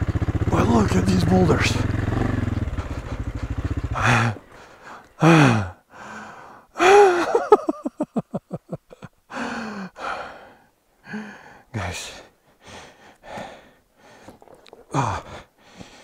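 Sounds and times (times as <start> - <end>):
motorcycle engine running: 0.0 - 5.7
person breathing laboriously: 3.8 - 7.4, 8.9 - 16.0.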